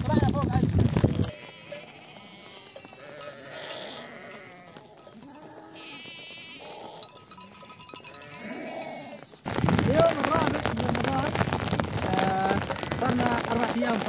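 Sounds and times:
sheep bleating: 1.2 - 9.3, 12.1 - 14.0.

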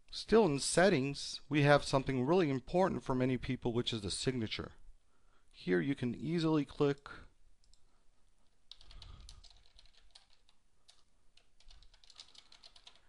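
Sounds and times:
faint typing on keyboard: 6.7 - 13.0.

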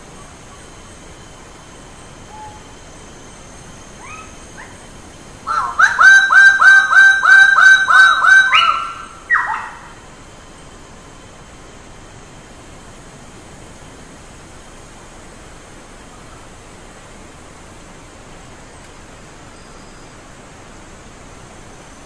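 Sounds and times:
steady hiss: 0.0 - 22.0
bird calling: 2.2 - 2.7, 4.0 - 4.8, 5.4 - 10.0.

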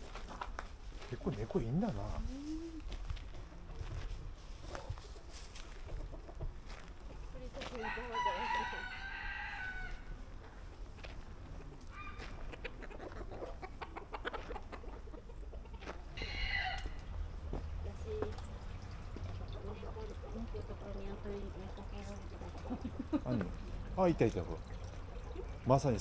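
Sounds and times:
chickens clucking: 4.6 - 7.3, 10.7 - 17.3
rooster crowing: 7.8 - 10.1, 16.2 - 17.0.

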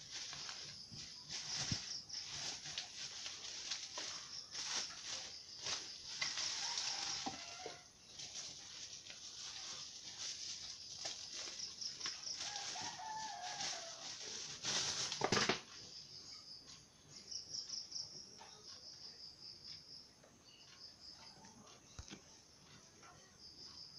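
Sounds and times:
bubble wrap rustling: 0.0 - 15.7
insects chirping: 0.0 - 23.9.

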